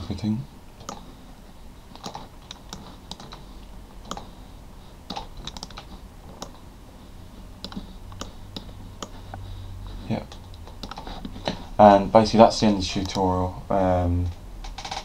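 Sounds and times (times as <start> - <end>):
faint low hum: 0.0 - 15.0
mouse and keyboard clicks: 0.8 - 1.0, 2.0 - 3.4, 5.1 - 6.6, 7.6 - 9.4, 10.3 - 11.1.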